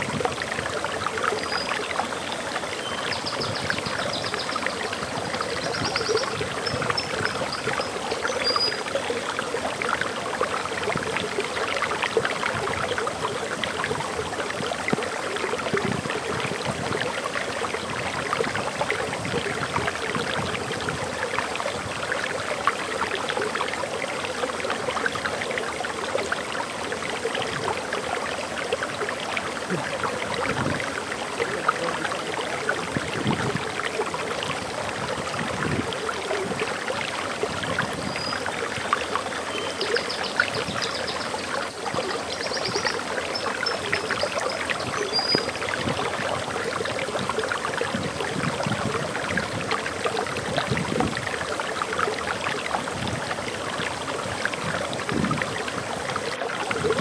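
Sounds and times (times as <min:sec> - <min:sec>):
water splashing over waterfall: 0:00.0 - 0:57.0
faint bird chirps: 0:05.4 - 0:08.9.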